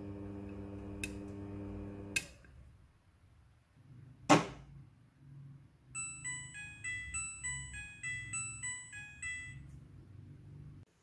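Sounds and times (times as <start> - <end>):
washing machine low hum: 0.0 - 2.2
electronic beeping melody: 6.0 - 9.7.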